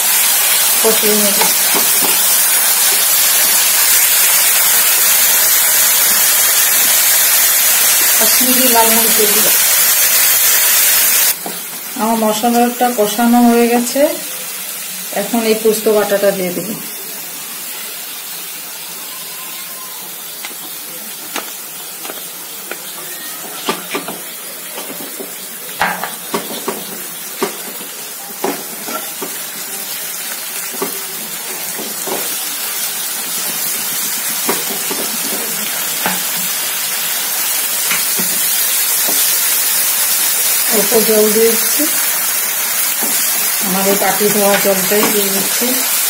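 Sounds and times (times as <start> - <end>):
spices sizzling in oil: 0.0 - 46.0
spatula knocking and scraping pan: 1.3 - 2.3, 24.8 - 29.4, 34.4 - 36.2, 44.1 - 45.4.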